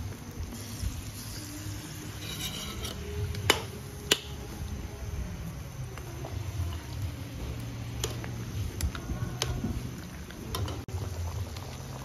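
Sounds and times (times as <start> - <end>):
utensils scraping metal wok: 1.4 - 3.6.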